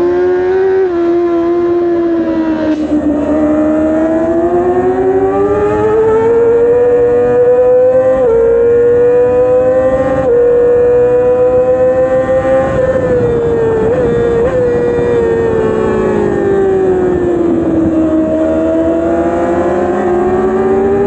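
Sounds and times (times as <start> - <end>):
racing engine revving: 0.0 - 21.0.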